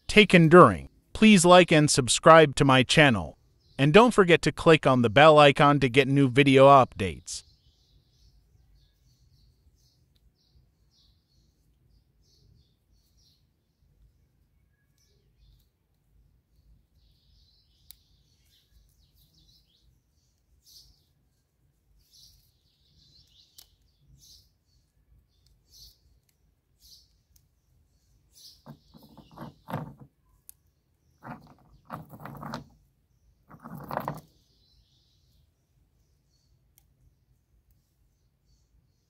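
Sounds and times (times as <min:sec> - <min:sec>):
small birds chirping: 0:03.4 - 0:03.8, 0:06.7 - 0:39.0
rocks knocking on wooden table: 0:28.7 - 0:30.1, 0:31.2 - 0:32.8, 0:33.5 - 0:34.3.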